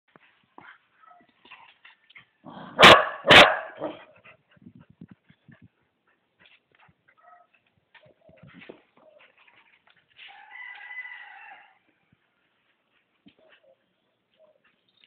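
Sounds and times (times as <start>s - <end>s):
dog barking: 2.7s - 4.1s, 7.2s - 7.6s.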